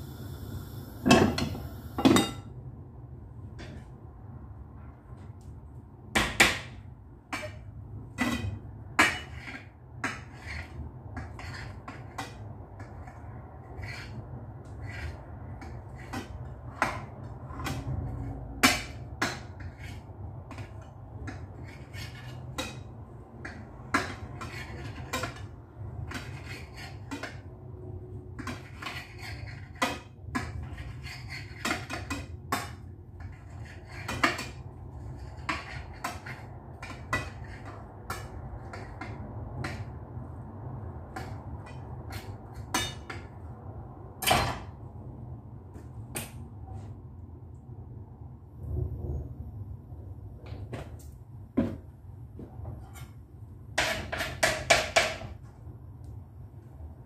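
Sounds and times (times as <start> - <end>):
steady low hum: 0.0 - 5.8.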